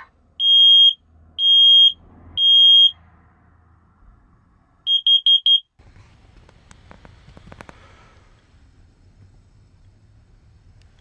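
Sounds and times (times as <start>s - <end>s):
smoke alarm beeping: 0.4s - 2.9s, 4.9s - 5.7s.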